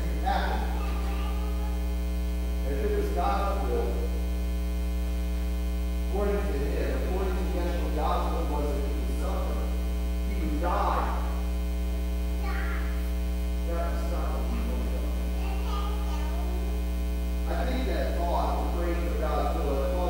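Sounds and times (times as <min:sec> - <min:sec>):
man speaking: 0:00.0 - 0:01.0, 0:02.6 - 0:04.2, 0:06.1 - 0:11.5, 0:13.6 - 0:15.4, 0:17.4 - 0:20.0
electrical mains hum: 0:00.0 - 0:20.0.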